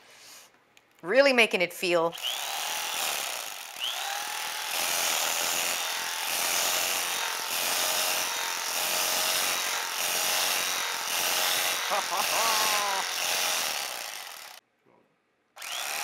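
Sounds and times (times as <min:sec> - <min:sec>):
electric carving knife motor buzz: 0:02.1 - 0:14.6, 0:15.6 - 0:16.0
blades sawing through chicken: 0:02.3 - 0:14.6.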